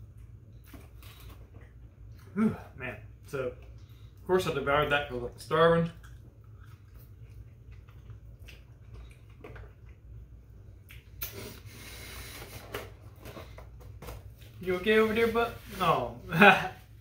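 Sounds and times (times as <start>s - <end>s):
people chewing: 0.0s - 2.6s, 5.8s - 10.2s.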